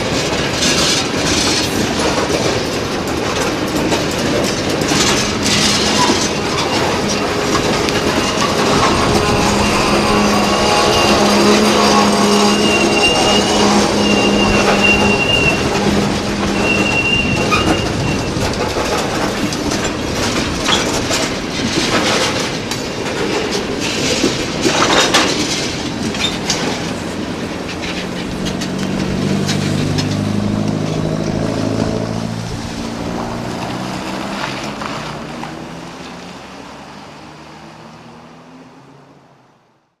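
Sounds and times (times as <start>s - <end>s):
train wheel flanges squealing: 0.0s - 35.4s
train cars clanking over rail joints: 0.0s - 36.8s
car engine passing: 5.0s - 21.4s, 27.0s - 39.4s.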